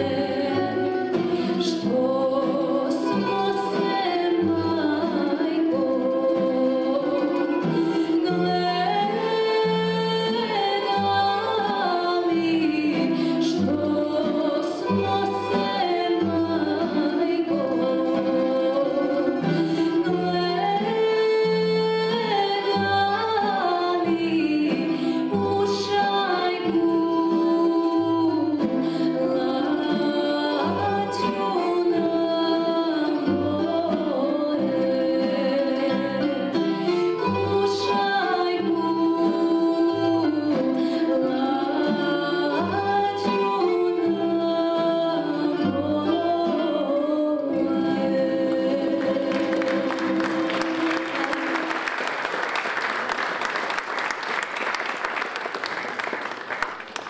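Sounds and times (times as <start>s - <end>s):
plucked double bass: 0.0s - 51.8s
woman singing: 0.0s - 51.9s
plucked string ensemble: 0.0s - 57.0s
audience applause: 49.0s - 57.0s.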